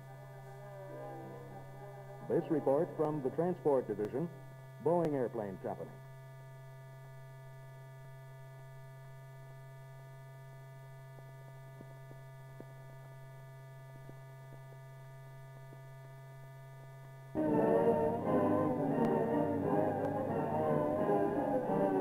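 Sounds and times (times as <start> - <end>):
electrical hum: 0.0 - 22.0
orchestral music: 17.4 - 22.0.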